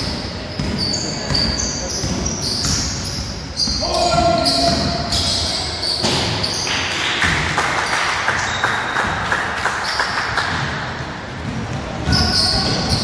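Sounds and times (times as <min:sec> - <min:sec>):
basketball bouncing on wooden court: 0:00.0 - 0:05.4, 0:10.3 - 0:13.0
sneakers squeaking: 0:00.0 - 0:13.0.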